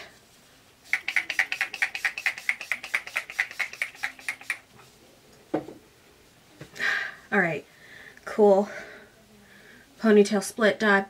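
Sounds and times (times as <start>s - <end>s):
spray bottle spritzing: 0.8s - 4.7s.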